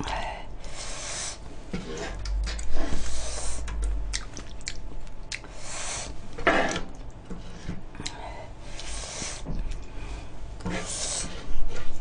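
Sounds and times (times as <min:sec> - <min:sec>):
utensils scraping fried rice in pan: 0:10.6 - 0:12.0.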